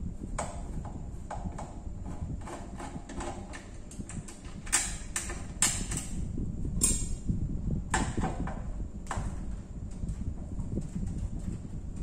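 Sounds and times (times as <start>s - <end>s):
screwdriver clicking on metal casing: 1.5s - 6.2s.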